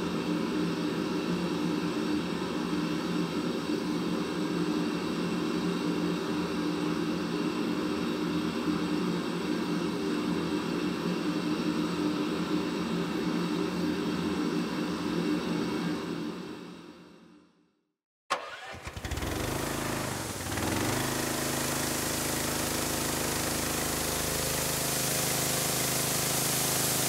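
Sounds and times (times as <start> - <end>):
gas forge burner roaring: 18.6 - 27.0.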